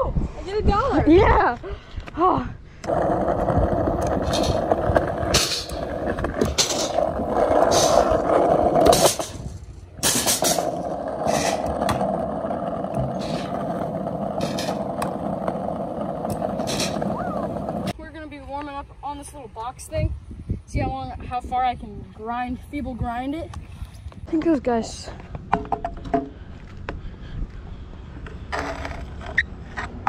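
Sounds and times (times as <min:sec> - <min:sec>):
scooter wheels rolling on concrete: 0:00.5 - 0:20.0, 0:20.9 - 0:30.0.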